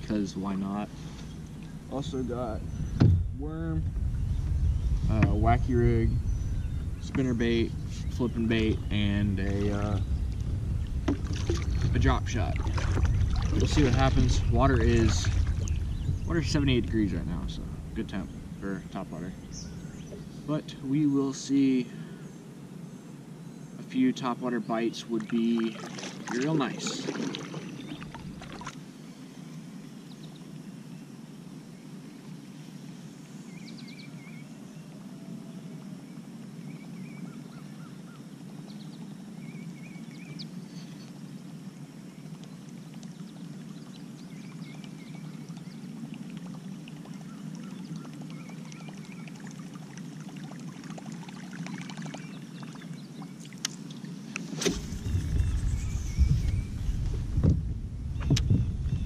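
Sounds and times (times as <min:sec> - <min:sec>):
low background hum: 0:00.0 - 0:59.0
fishing rod cast swish: 0:54.4 - 0:55.1.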